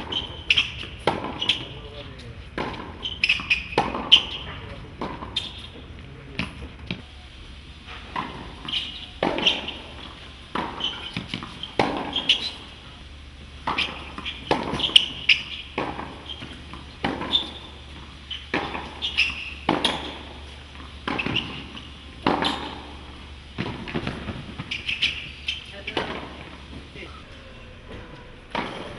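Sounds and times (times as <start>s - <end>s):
racquet striking tennis ball: 0.0s - 5.8s, 8.0s - 12.8s, 13.4s - 26.9s, 27.9s - 28.9s
tennis ball bouncing on court: 0.0s - 7.0s, 8.1s - 12.8s, 13.4s - 26.9s, 28.5s - 28.9s.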